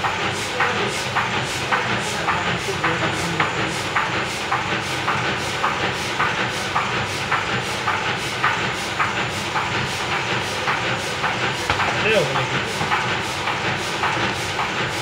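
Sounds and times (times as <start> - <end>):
printing press clacking: 0.0 - 15.0
printing press humming: 0.0 - 15.0.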